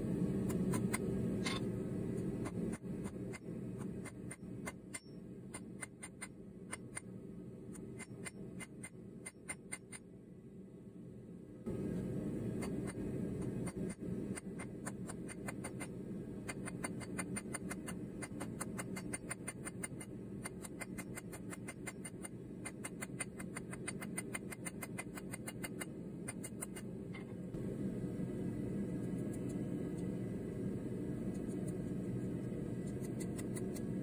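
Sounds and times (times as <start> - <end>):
low steady hum: 0.0 - 34.0.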